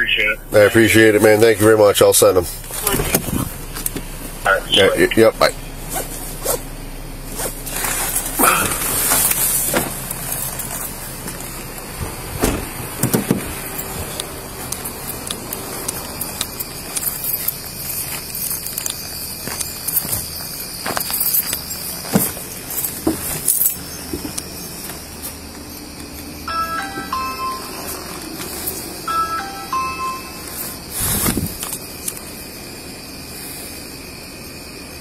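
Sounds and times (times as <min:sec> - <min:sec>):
crickets chirping: 0:00.0 - 0:35.0
rustling and knocking of gear: 0:07.3 - 0:26.2
keys jangling: 0:13.7 - 0:22.1, 0:22.7 - 0:24.0
footsteps on wooden boards: 0:19.4 - 0:25.6.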